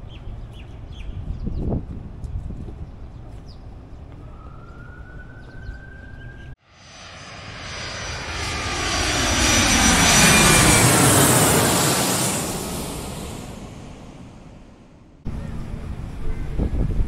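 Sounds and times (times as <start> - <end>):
aircraft engine rushing whine: 4.0 - 17.0.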